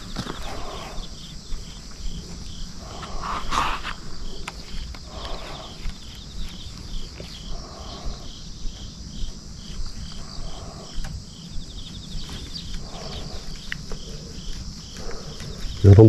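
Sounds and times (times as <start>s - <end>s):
insect trill: 0.0s - 16.0s
insects chirping: 0.0s - 16.0s.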